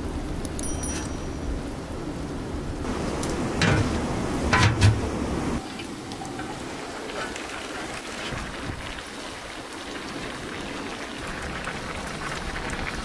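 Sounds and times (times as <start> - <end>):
rice boiling in water: 2.8 - 13.0
metal pot lid clanks: 3.6 - 5.1.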